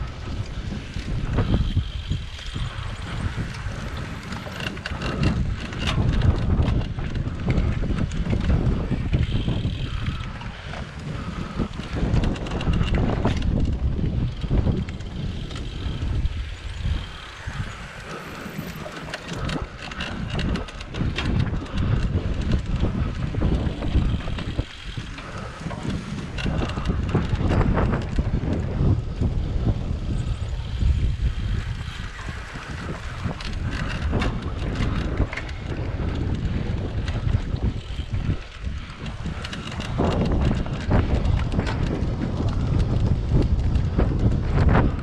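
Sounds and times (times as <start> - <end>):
bike knocking and rattling: 0.0 - 45.0
knobby tyres rumbling on dirt: 0.0 - 45.0
wind buffeting microphone: 0.0 - 45.0.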